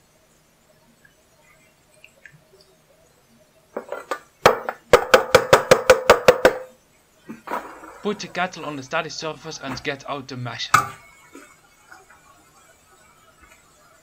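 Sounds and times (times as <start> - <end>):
colander knocking on saucepan rim: 3.8 - 6.8.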